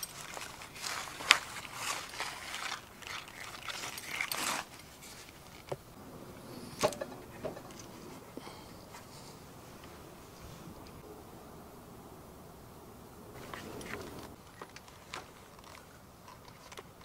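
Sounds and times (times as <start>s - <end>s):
rustling and scraping on canvas: 0.0s - 5.9s.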